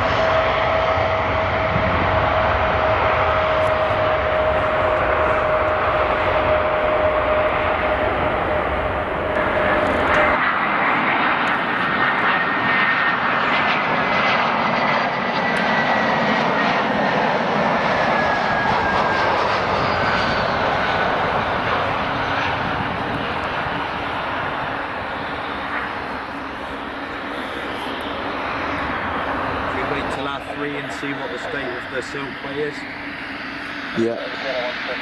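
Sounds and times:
airliner jet engine whine: 0:00.0 - 0:35.0
jet engines roaring: 0:00.0 - 0:35.0.

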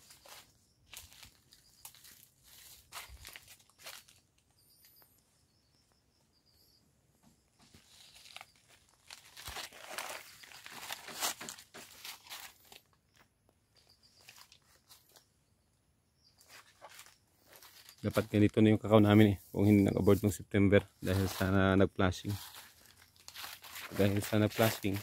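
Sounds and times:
footsteps crunching dry leaves: 0:00.0 - 0:04.4, 0:07.7 - 0:13.2, 0:14.0 - 0:15.3, 0:16.4 - 0:20.4, 0:21.0 - 0:25.0.

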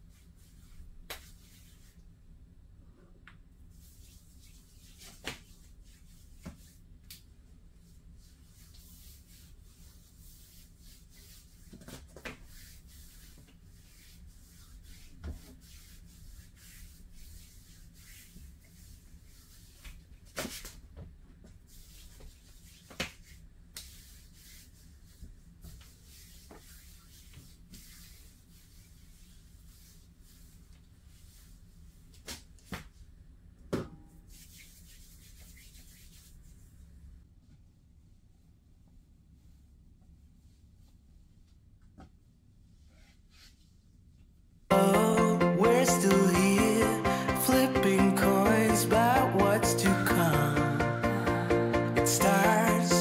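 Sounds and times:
hands rubbing skin: 0:00.1 - 0:02.0, 0:03.7 - 0:07.3, 0:08.2 - 0:20.8, 0:21.7 - 0:31.6, 0:34.3 - 0:36.6.

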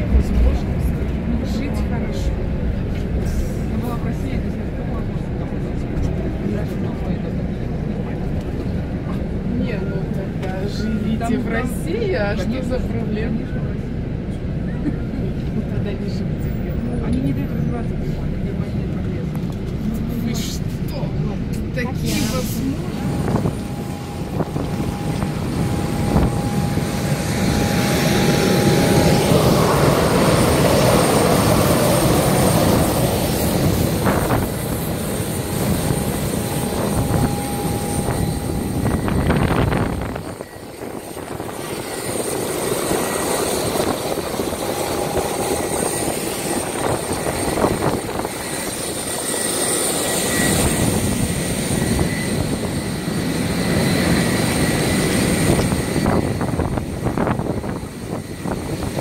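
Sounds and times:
faint engine whine: 0:00.0 - 0:59.0
jet engine rumble in cabin: 0:00.0 - 0:59.0.

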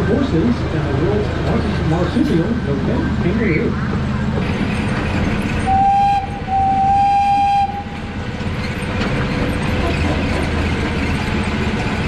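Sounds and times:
small train running on track: 0:00.0 - 0:12.0
train horn blasts: 0:05.7 - 0:08.0.

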